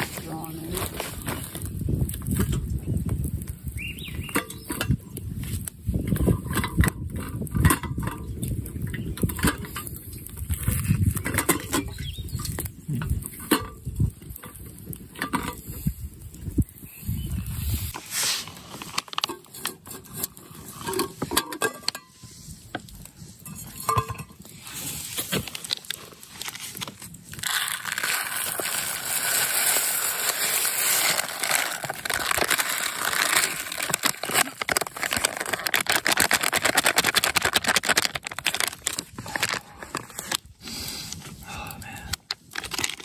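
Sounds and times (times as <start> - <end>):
wood fire crackling and popping: 0.0 - 43.0
rice pouring into water: 27.4 - 35.2.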